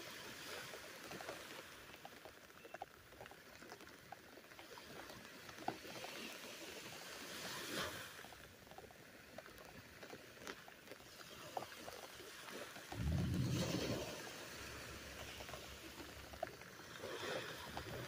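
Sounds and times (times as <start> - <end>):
light rain pattering: 0.0 - 18.0.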